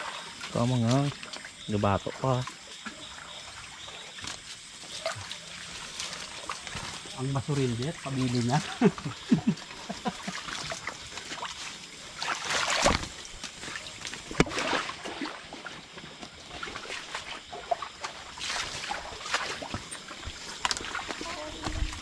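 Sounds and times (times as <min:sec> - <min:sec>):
water sloshing and splashing: 0:00.0 - 0:22.0.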